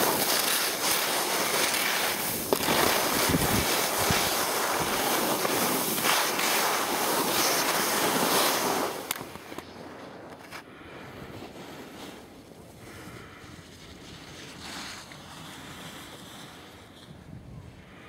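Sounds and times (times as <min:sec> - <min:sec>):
skis sliding over snow: 0:00.0 - 0:17.3
wind buffeting microphone: 0:02.1 - 0:06.8.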